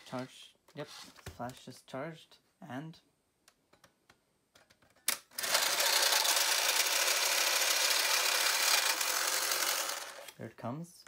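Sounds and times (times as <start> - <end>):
camera ejection motor running: 5.4 - 10.4.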